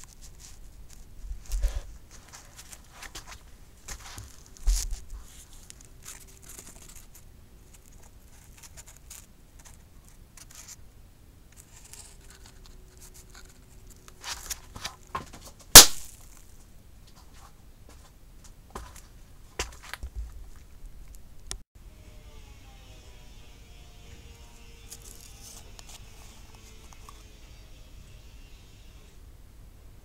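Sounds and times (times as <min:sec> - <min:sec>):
firecracker bang: 0:15.7 - 0:16.2
firecracker crackling: 0:15.7 - 0:16.4.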